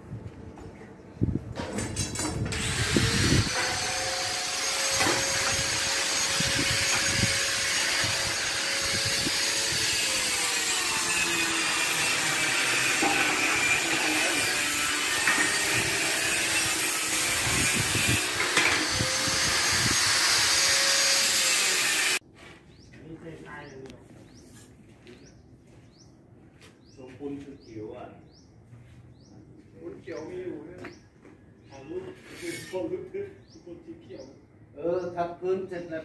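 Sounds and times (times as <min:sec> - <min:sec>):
angle grinder on metal: 0:02.4 - 0:22.2, 0:32.2 - 0:32.9.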